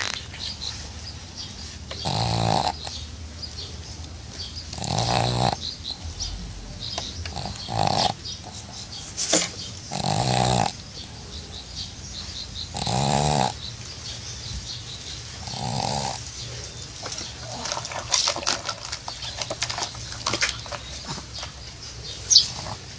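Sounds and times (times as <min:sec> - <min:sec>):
crackly snuffling breaths: 0:00.0 - 0:22.9
dog snoring: 0:02.0 - 0:03.0, 0:04.6 - 0:08.8, 0:09.9 - 0:11.1, 0:12.7 - 0:13.7, 0:15.4 - 0:16.6.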